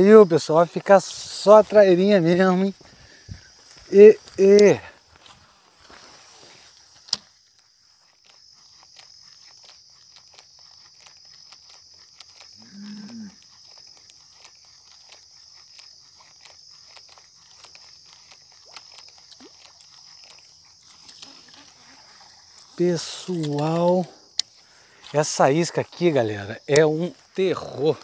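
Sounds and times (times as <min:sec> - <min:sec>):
high insect buzz: 0:00.0 - 0:28.0
cow mooing: 0:12.6 - 0:13.4.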